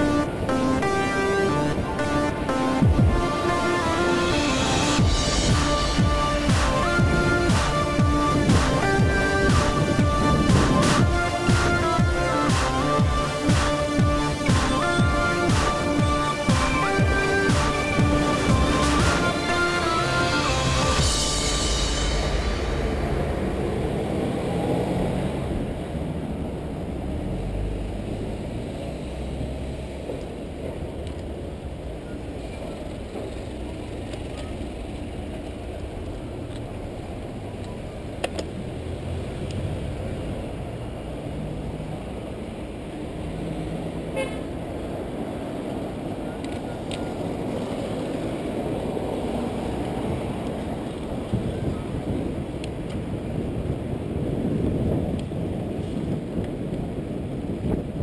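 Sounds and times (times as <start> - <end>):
car traffic: 0.0 - 58.0
bicycle tyre and road noise: 23.9 - 58.0
wind rumble on microphone: 46.7 - 58.0.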